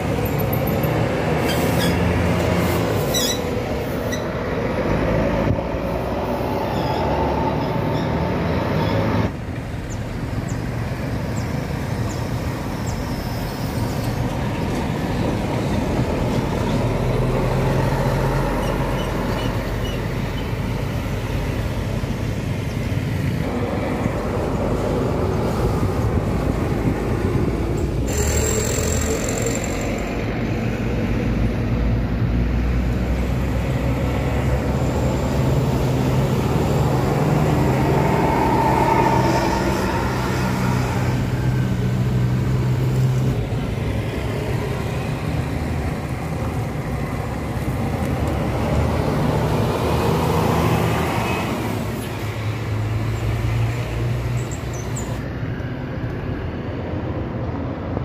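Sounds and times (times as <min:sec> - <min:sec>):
coach diesel engines passing: 0:00.0 - 0:58.0.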